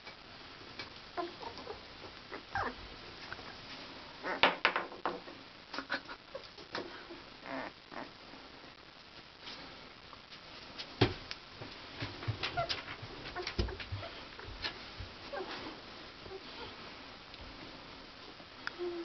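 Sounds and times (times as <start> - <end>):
puppies squeaking and whimpering: 1.2 - 2.8.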